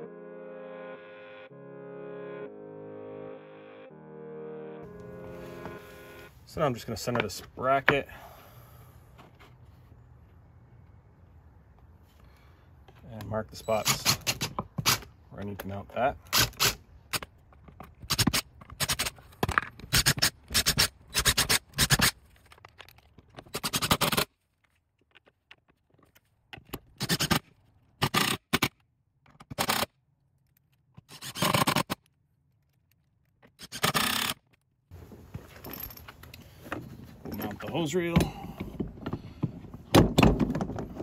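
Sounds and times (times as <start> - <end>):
drill driving screws: 31.1 - 32.0, 33.6 - 34.4
cordless drill boring into wood: 33.6 - 34.4.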